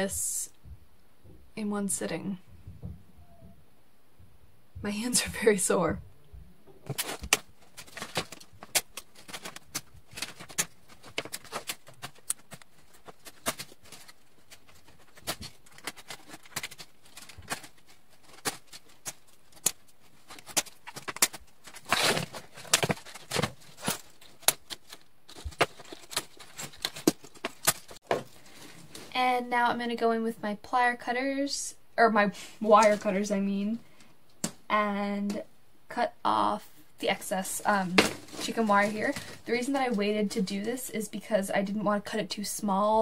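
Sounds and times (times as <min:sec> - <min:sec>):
rustling: 0:06.7 - 0:29.3, 0:37.0 - 0:41.1.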